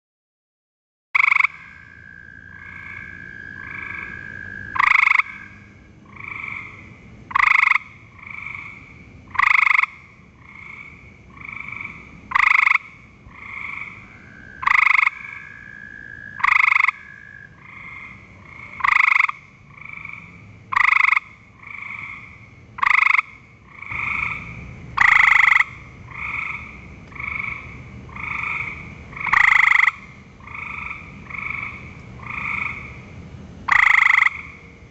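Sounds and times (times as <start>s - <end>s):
other frogs trilling faintly: 1.2s - 34.8s
treefrog trilling: 1.2s - 34.8s.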